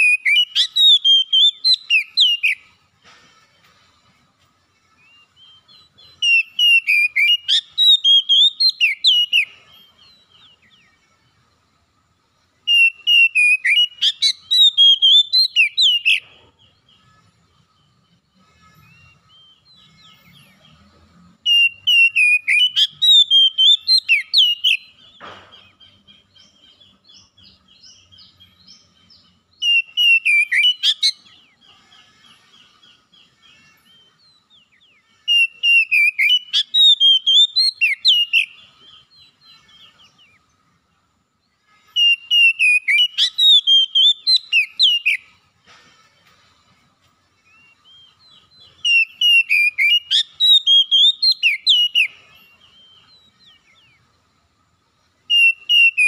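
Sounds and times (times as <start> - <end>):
bird song whistled phrases: 0.0 - 2.8, 4.9 - 11.0, 12.6 - 16.2, 21.5 - 40.5, 41.9 - 45.4, 47.4 - 54.1, 55.2 - 56.0
soft bird twittering: 12.6 - 56.0.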